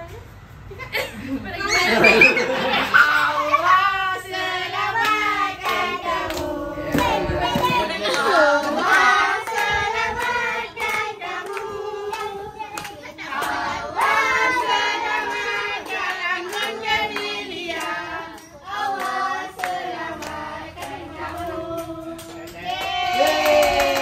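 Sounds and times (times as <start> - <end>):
group singing together: 1.7 - 23.0
hands clapping along: 5.0 - 24.0.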